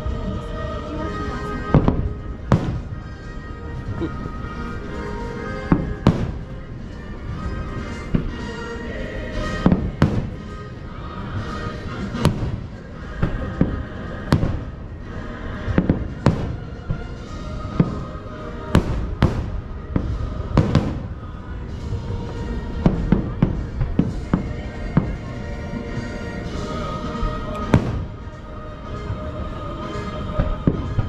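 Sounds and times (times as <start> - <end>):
music playing: 0.0 - 31.0
fireworks booming and cracking: 1.5 - 6.7, 9.3 - 25.7, 27.2 - 28.4, 30.2 - 31.0.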